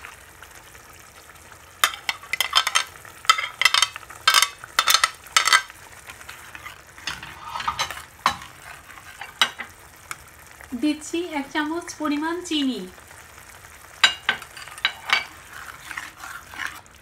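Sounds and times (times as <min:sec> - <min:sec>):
low sizzle: 0:00.0 - 0:17.0
metal spatula scraping a pan: 0:01.8 - 0:09.7, 0:14.0 - 0:17.0.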